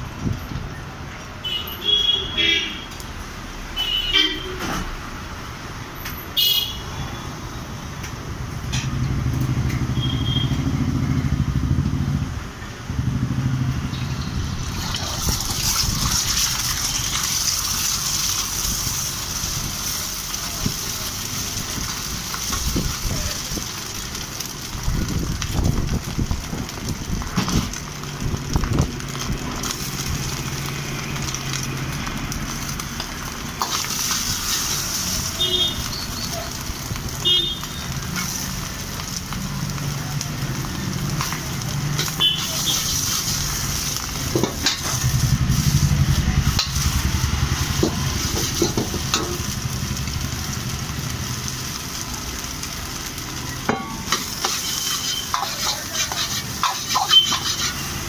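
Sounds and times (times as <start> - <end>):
car horn toots: 3.8 - 4.6.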